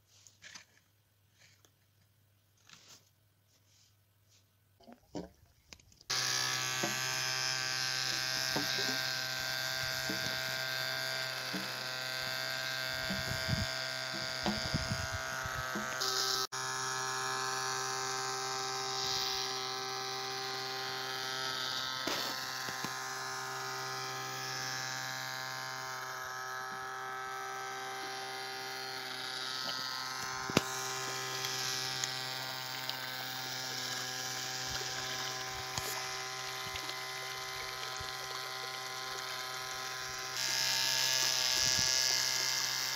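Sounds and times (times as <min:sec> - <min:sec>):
small electric motor buzzing: 0:06.1 - 0:42.9.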